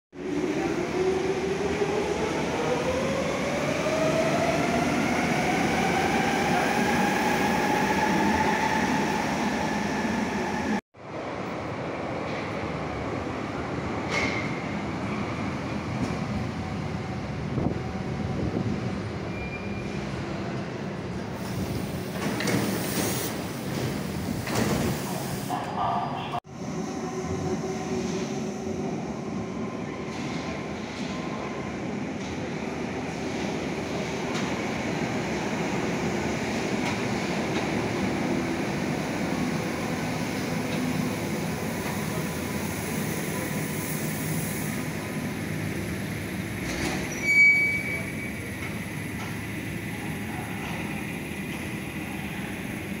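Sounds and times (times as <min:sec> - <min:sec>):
train rumbling to a stop: 0:00.2 - 0:53.0
faint brake squeal: 0:19.2 - 0:20.1, 0:46.9 - 0:48.5.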